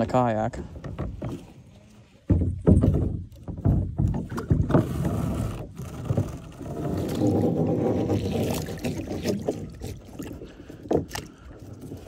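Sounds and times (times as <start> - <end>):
rope knocks and handling bumps: 0.8 - 4.9
rope rubbing over side: 4.8 - 9.0.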